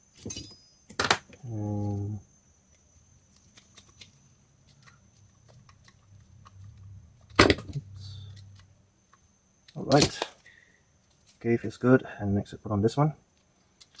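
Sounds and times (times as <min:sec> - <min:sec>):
short low hum: 0:05.7 - 0:08.8.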